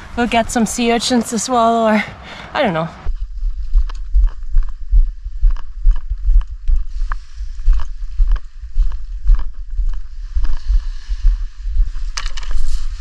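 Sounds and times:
footsteps on dirt and pebbles: 3.1 - 13.0
handheld camera thumps: 12.0 - 12.8.

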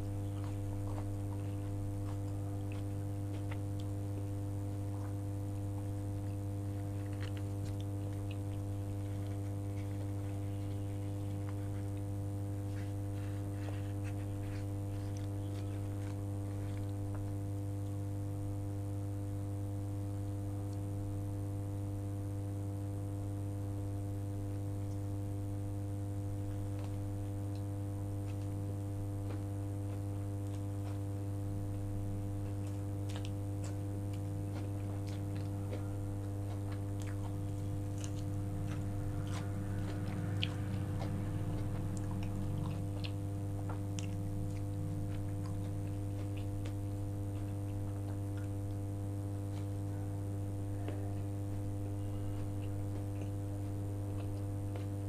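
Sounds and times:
wet mouth chewing clicks: 0.0 - 12.1, 32.4 - 49.8
low electrical hum: 0.0 - 55.0.

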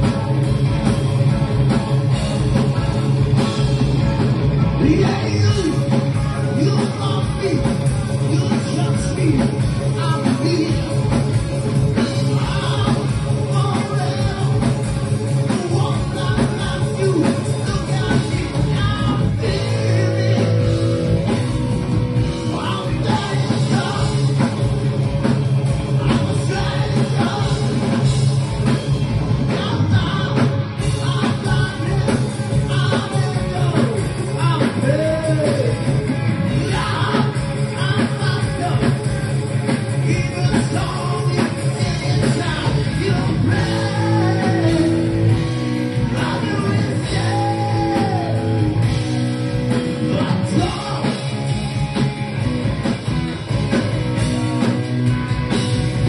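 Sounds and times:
live rock band playing: 0.0 - 56.0
lead singer vocals: 12.0 - 14.8, 15.5 - 21.2, 22.4 - 24.4, 26.0 - 28.1, 29.5 - 35.8, 36.5 - 39.0, 40.0 - 49.2, 50.0 - 51.3.

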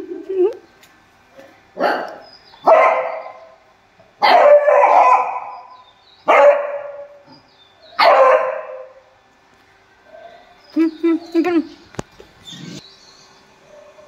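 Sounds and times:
dog barking: 1.8 - 3.6, 4.2 - 7.2, 8.0 - 9.0.

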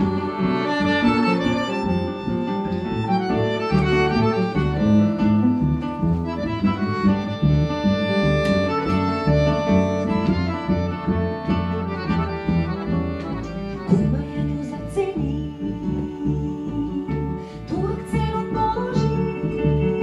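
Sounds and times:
woman singing: 0.0 - 2.1, 13.8 - 20.0
accordion chords: 0.0 - 20.0
double bass line: 0.0 - 20.0
plucked guitar: 0.0 - 20.0.

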